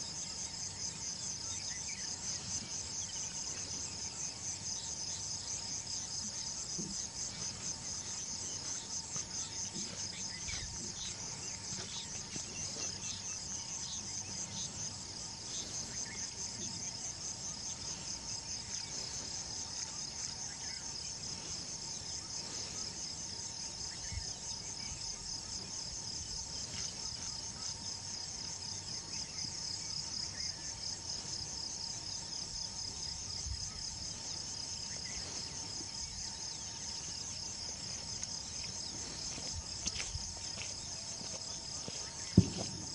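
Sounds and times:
insect chorus trilling: 0.0 - 42.9.

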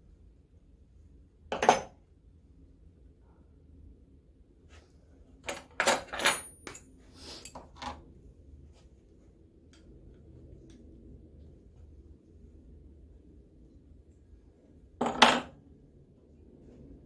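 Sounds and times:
metal tools clinking: 5.5 - 8.0.

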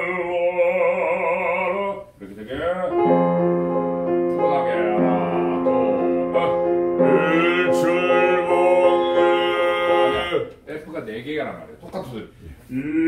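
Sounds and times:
man singing classical style: 0.0 - 10.5
piano accompaniment: 2.9 - 10.5.

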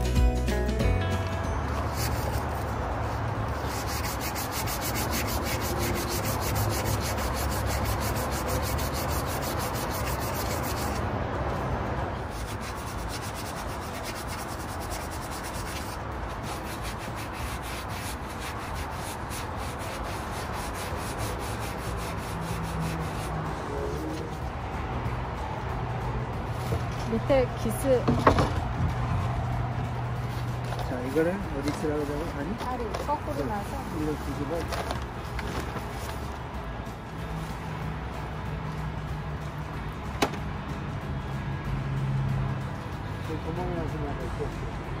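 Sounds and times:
sanding wood: 3.4 - 11.0, 12.3 - 24.3.

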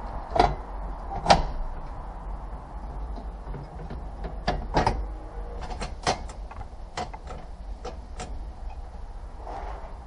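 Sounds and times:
clicks and knocks in dashboard: 3.1 - 5.0, 5.6 - 8.4.

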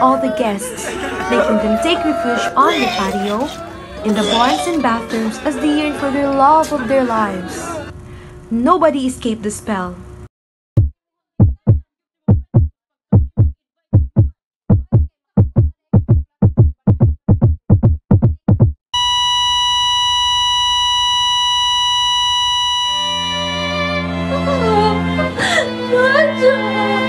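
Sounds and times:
heartbeat thumps: 10.8 - 18.8
high electronic flatline tone: 19.0 - 24.1.

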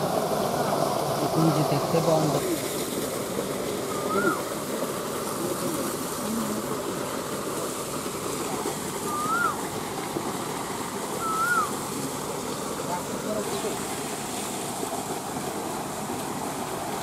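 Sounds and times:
water gushing from pipe: 0.0 - 17.0
rising and falling whistle: 3.9 - 4.4, 9.1 - 9.6, 11.2 - 11.7.

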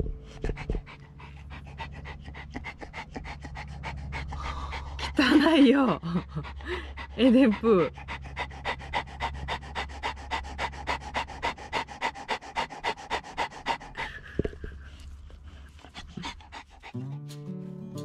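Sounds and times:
music: 0.0 - 2.4, 16.5 - 18.0
dog panting: 0.0 - 17.6.

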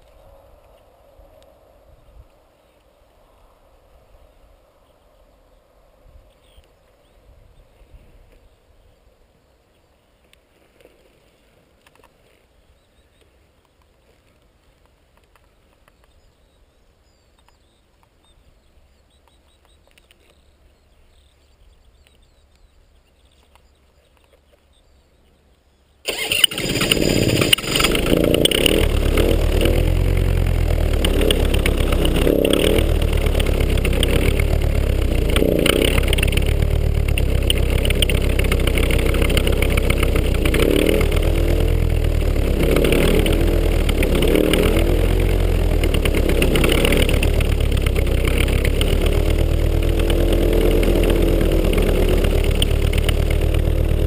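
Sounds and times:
faint rustles: 9.7 - 16.2
paramotor engine running: 26.1 - 54.0.

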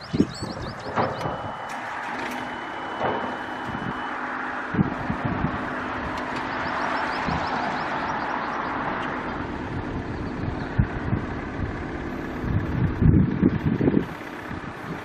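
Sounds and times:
high steady tone: 0.0 - 10.6
diesel engine running: 0.0 - 15.0.

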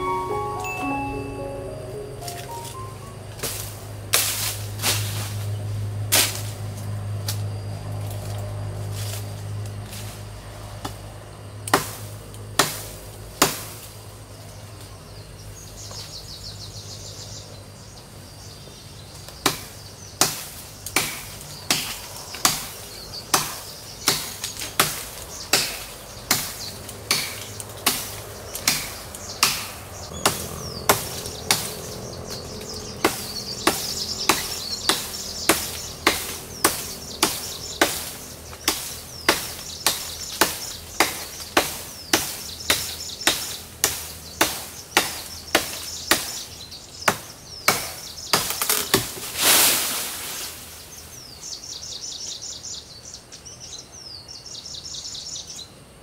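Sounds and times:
birds chirping: 0.0 - 3.3, 21.5 - 49.0
machete hacking wood: 11.7 - 12.0, 13.4 - 13.7, 19.4 - 22.7, 23.3 - 28.1, 28.7 - 31.7, 33.0 - 46.3, 47.1 - 49.2.

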